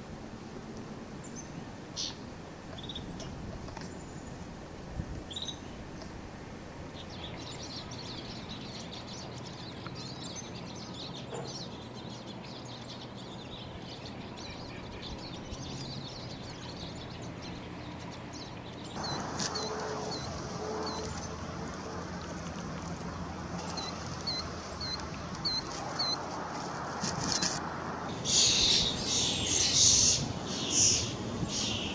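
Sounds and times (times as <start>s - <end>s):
small songbirds chirping: 1.2s - 6.2s, 6.8s - 31.9s.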